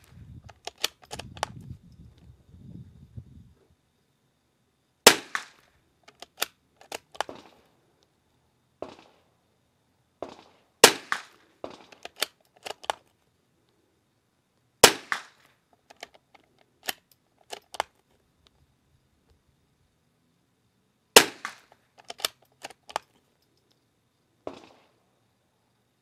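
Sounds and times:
sharp clicks and cracks: 0.4s - 1.6s, 5.3s - 7.6s, 10.2s - 13.2s, 14.6s - 18.6s, 21.2s - 23.8s
rifle shots: 5.0s - 5.6s, 10.2s - 12.2s, 14.8s - 15.4s, 21.2s - 22.4s.

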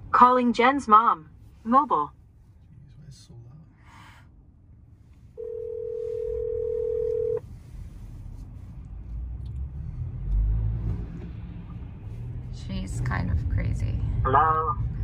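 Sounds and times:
car road rumble: 0.0s - 15.0s
telephone ringback tone: 5.4s - 7.4s.

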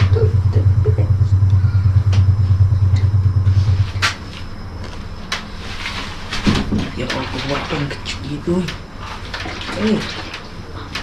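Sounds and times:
loud low motor rumble: 0.0s - 7.7s.

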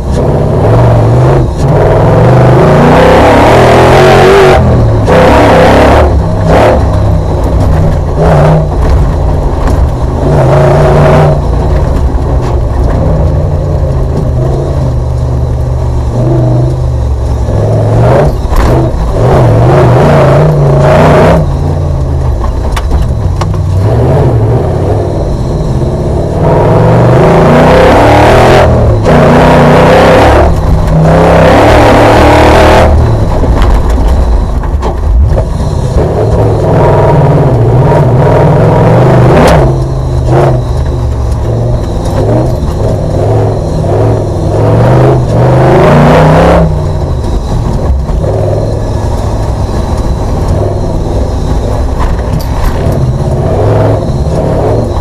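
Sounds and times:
racing car engine revving: 0.0s - 55.0s.

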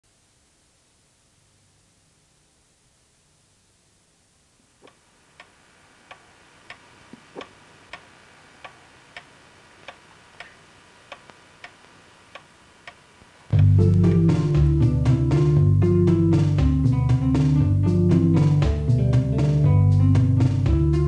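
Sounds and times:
clock ticking: 8.6s - 14.8s.

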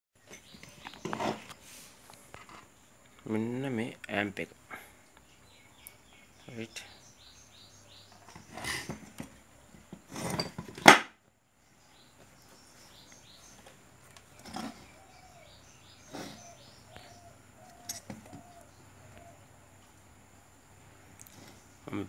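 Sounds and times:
birds chirping faintly: 0.2s - 22.0s
metal case clattering: 10.0s - 11.0s.

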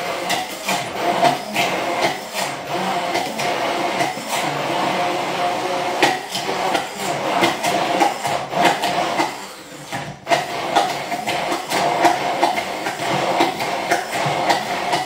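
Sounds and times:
hand blender motor hum: 0.0s - 15.0s
blender clicks and knocks: 5.9s - 15.0s.

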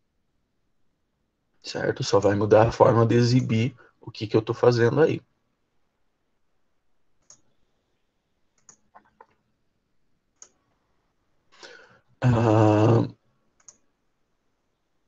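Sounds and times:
computer mouse clicking: 7.2s - 7.6s, 8.5s - 9.4s, 10.4s - 10.6s, 13.6s - 13.9s
short breath: 11.5s - 12.1s
man humming: 12.2s - 13.2s.

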